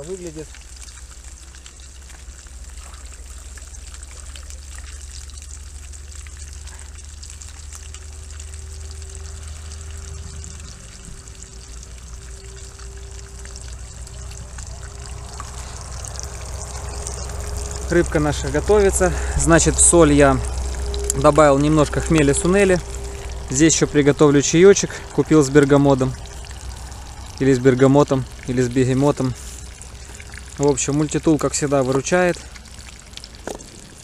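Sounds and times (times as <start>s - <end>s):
fish sizzling in a pan: 0.0s - 23.5s, 26.1s - 27.4s
faint steady hum: 0.0s - 34.0s
gas burner flame roar: 2.3s - 31.6s.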